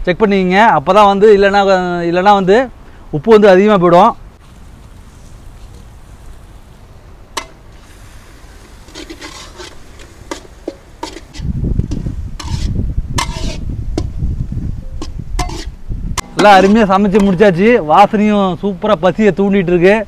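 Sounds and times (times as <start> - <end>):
metal ladle stirring thick food: 8.6 - 13.6, 15.0 - 17.6.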